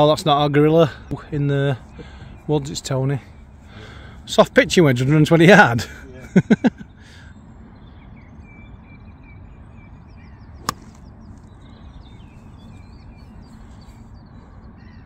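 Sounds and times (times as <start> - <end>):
golf club striking ball: 10.6 - 11.2.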